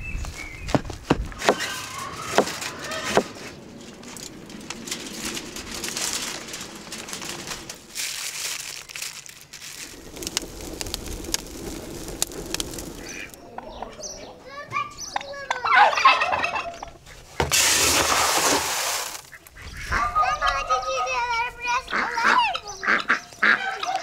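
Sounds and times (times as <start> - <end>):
birds calling: 0.0 - 7.9, 8.7 - 18.1, 19.0 - 24.0
wet clay packed by hand: 7.7 - 13.4, 17.4 - 19.3.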